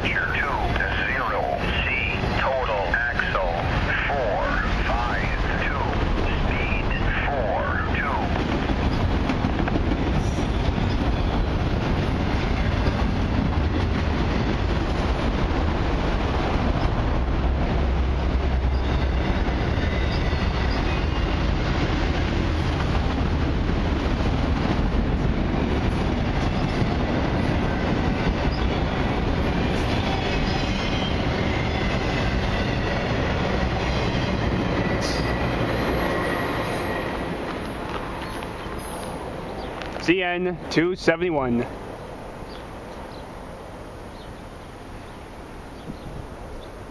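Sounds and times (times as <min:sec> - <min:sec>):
steel wheels rumbling on rail: 0:00.0 - 0:46.9
high wheel squeal: 0:34.1 - 0:37.4, 0:38.2 - 0:39.6.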